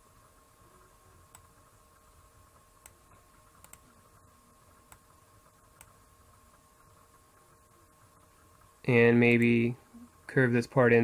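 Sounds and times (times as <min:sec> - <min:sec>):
faint steady hum: 0:00.0 - 0:11.0
computer mouse clicking: 0:01.3 - 0:01.6, 0:02.8 - 0:04.1, 0:04.8 - 0:07.2.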